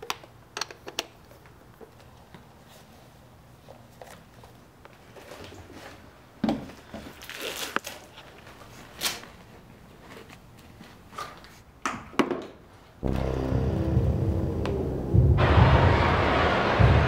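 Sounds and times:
music: 0:13.0 - 0:17.0.

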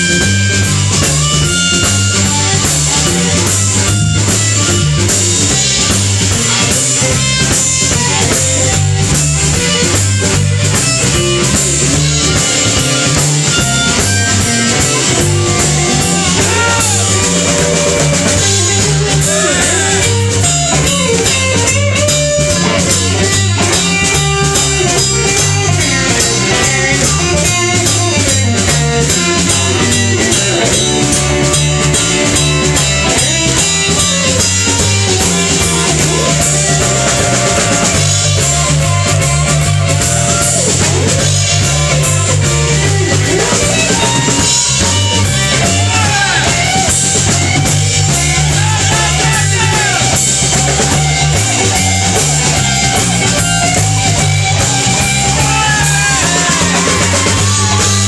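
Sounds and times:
amplified blues harmonica: 0:00.0 - 0:58.0
bass guitar: 0:00.0 - 0:58.0
drum kit: 0:00.0 - 0:58.0
electric guitar: 0:00.0 - 0:58.0.

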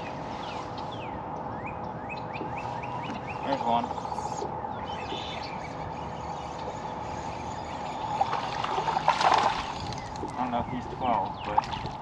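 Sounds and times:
water sloshing and splashing: 0:08.0 - 0:10.5, 0:11.1 - 0:12.0.

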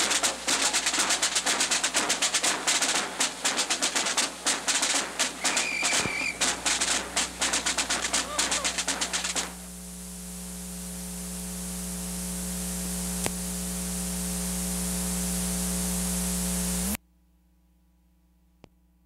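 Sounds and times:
videotape hiss and hum: 0:00.0 - 0:17.0
click: 0:13.2 - 0:13.4
faint tick: 0:13.2 - 0:13.4.

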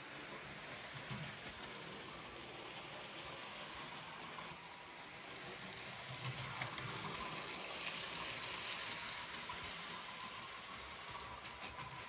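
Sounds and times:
model train motor hum: 0:00.0 - 0:12.0
small wheels rattling on rails: 0:06.1 - 0:12.0.

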